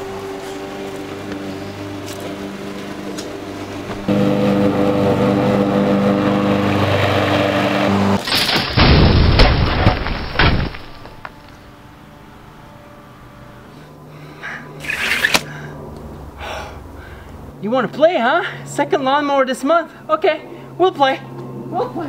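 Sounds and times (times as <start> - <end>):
lawnmower engine running: 0.0 - 8.3.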